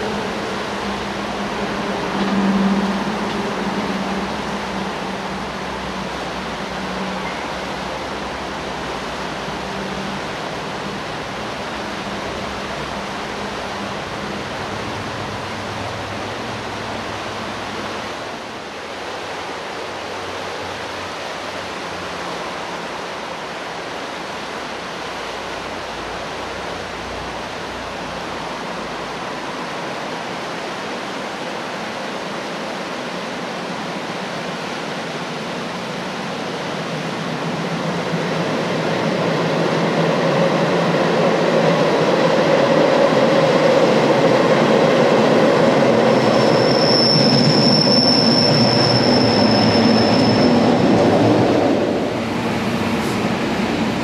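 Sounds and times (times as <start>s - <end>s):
river rushing over rapids: 0.0s - 54.0s.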